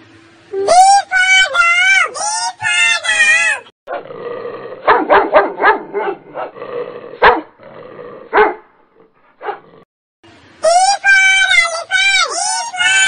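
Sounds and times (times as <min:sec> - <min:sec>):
dog barking: 0:04.8 - 0:06.6, 0:07.2 - 0:07.6, 0:08.3 - 0:09.8.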